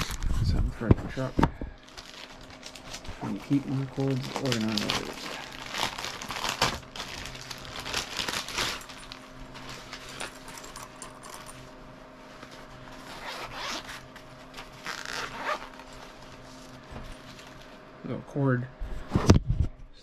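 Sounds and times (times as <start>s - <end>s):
plastic packaging rustling: 0.0s - 17.8s
fan hum: 0.0s - 20.0s
zipper being pulled open: 13.0s - 16.0s.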